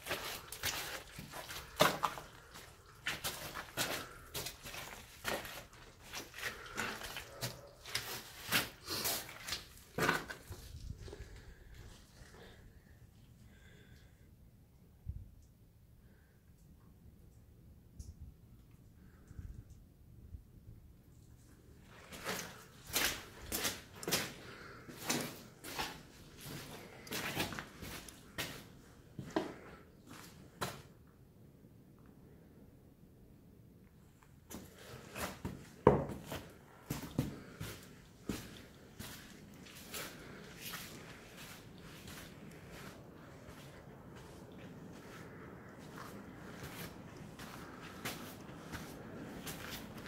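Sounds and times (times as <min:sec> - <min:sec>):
footsteps on wet stony floor: 0:00.0 - 0:12.6, 0:21.8 - 0:30.9, 0:34.5 - 0:50.0.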